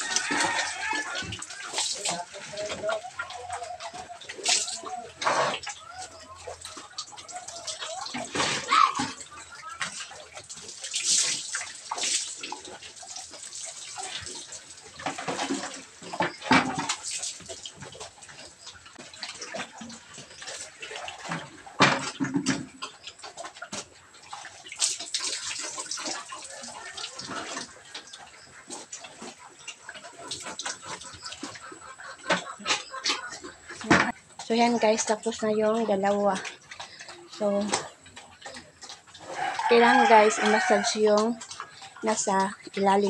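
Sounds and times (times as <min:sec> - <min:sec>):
water splashing on concrete: 0:06.5 - 0:18.0.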